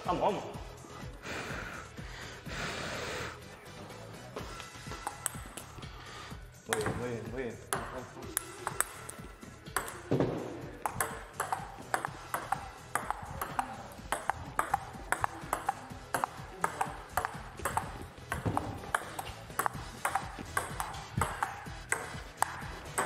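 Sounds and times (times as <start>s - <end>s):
table tennis ball clicking: 5.0s - 5.7s, 6.7s - 7.0s, 7.7s - 10.1s, 10.8s - 23.0s.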